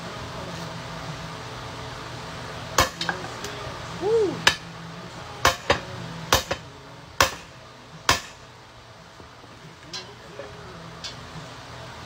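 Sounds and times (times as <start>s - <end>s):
hammer striking metal: 2.8s - 3.3s, 4.4s - 4.6s, 5.4s - 8.4s.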